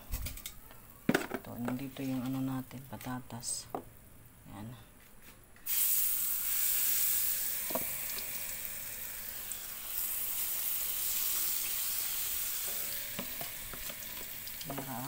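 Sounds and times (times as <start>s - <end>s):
potatoes sizzling in hot oil: 5.7s - 15.0s.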